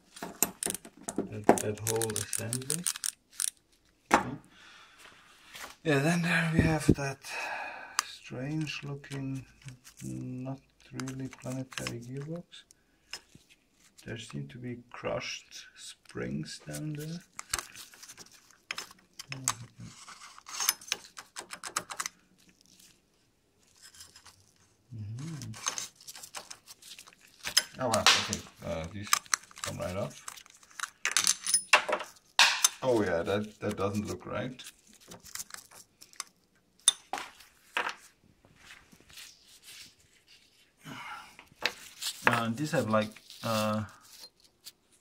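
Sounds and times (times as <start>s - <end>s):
metal parts clicking and knocking: 0.2s - 3.6s, 31.0s - 32.8s
bicycle hub parts clicking: 1.6s - 3.6s
person humming: 24.9s - 25.6s.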